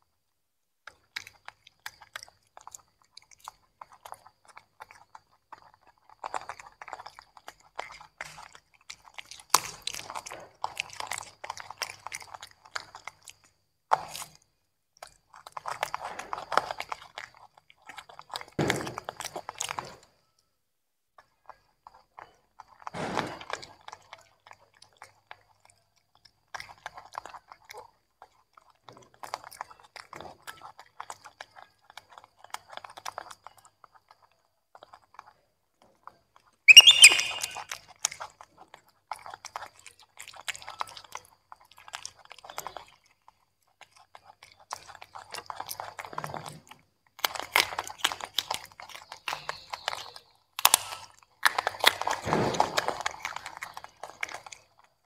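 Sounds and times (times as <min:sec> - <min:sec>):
monkeys chewing crunchy vegetables: 0:00.8 - 0:20.2, 0:21.2 - 0:55.0
high-pitched squeak: 0:36.7 - 0:37.6.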